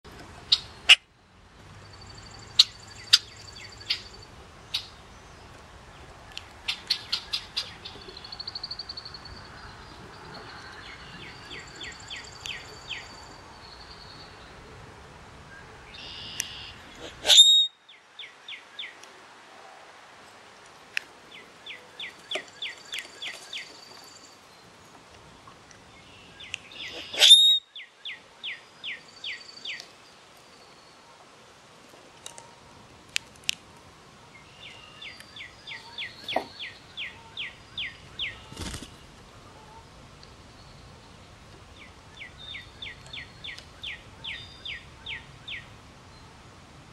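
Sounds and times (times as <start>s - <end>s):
bird trilling: 16.0s - 17.7s, 26.8s - 27.6s
thin high bird whistles: 16.0s - 17.8s, 26.8s - 27.7s
harsh bird call with squeak: 16.1s - 17.7s, 26.9s - 27.6s.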